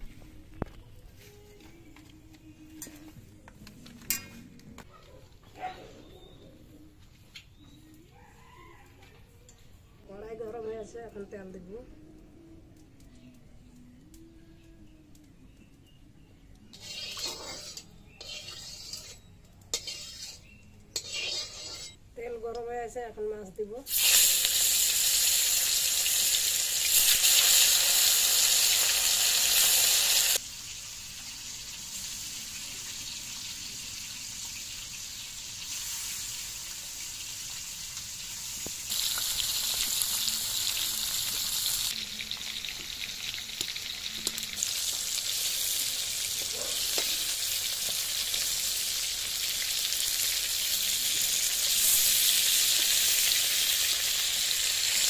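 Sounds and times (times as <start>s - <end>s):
fish sizzling in hot oil: 16.7s - 22.0s, 23.9s - 55.0s.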